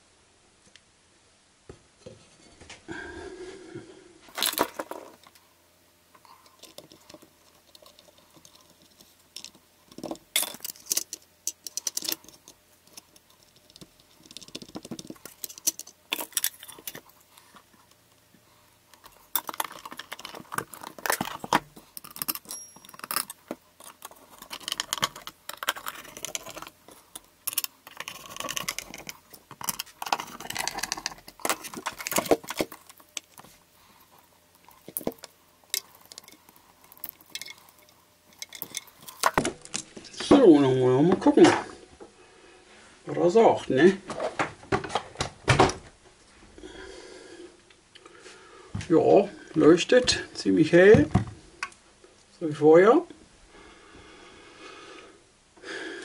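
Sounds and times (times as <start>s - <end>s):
plastic parts clicking and rattling: 4.3s - 5.4s, 6.2s - 18.0s, 18.9s - 39.9s.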